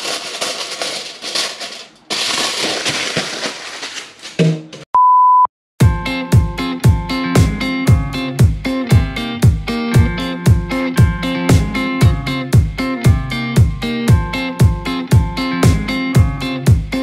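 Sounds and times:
aluminium foil crinkling: 0.0 - 4.5
high beep: 5.0 - 5.5
guitar music with drum beat: 5.8 - 17.0.

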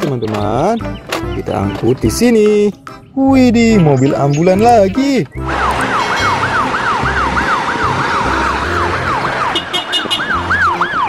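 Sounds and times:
ambulance siren wailing: 3.6 - 11.0.

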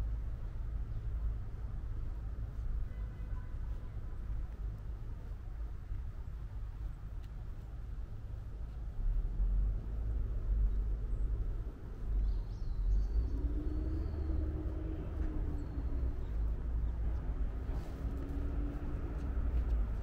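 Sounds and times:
steady low rumble: 0.0 - 20.0
faint high bird chirps: 12.1 - 17.3.

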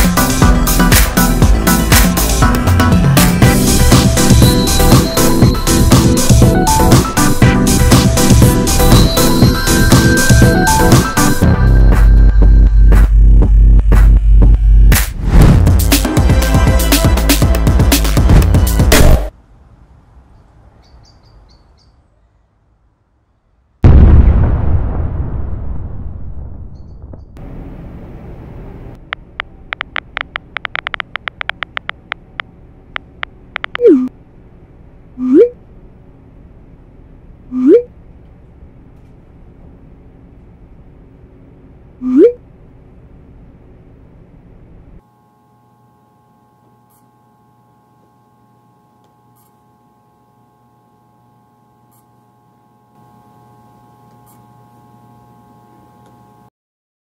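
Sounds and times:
drone of held tones: 3.4 - 13.8, 29.2 - 34.2, 35.1 - 35.7, 37.4 - 38.0, 42.0 - 42.4, 45.0 - 56.5
low rumbling noise: 23.8 - 29.7
low hum: 23.8 - 56.4
soft clicks: 29.1 - 33.8
touchscreen keyboard taps: 29.2 - 32.2
falling bloop sound effect: 33.6 - 34.1, 35.2 - 35.6, 37.5 - 37.9, 42.0 - 42.4.

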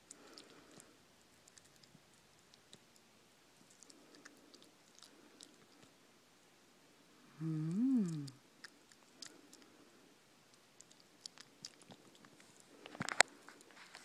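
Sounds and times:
animal chewing wet mouth clicks: 0.1 - 3.0, 3.7 - 5.9, 10.5 - 13.3.

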